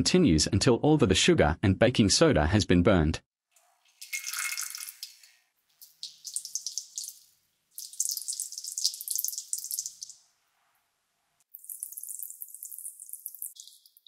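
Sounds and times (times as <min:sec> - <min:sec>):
chemical mixture sizzling in beaker: 0:03.6 - 0:10.2, 0:11.5 - 0:14.0.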